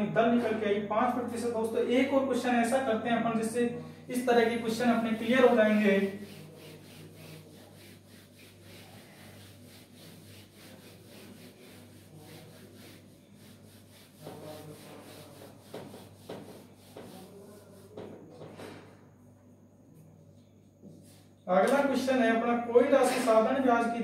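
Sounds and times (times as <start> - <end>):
duster rubbing on whiteboard: 3.5 - 18.8.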